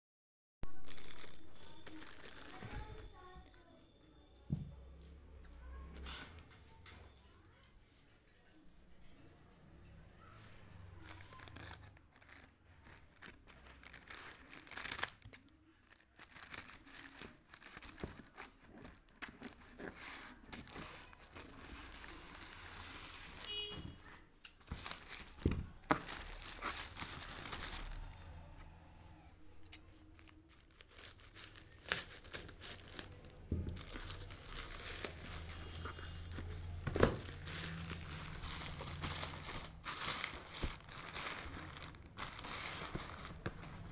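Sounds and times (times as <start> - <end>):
plastic bag crinkling and tearing: 0.6 - 3.8, 10.8 - 43.9
scissors cutting plastic: 11.0 - 22.1.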